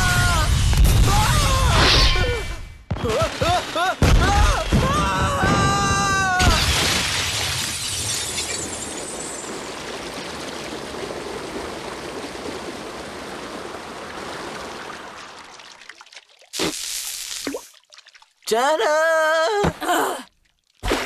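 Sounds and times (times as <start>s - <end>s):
water dripping: 10.4s - 18.6s, 20.3s - 21.0s
cartoon water gushing: 14.9s - 18.3s.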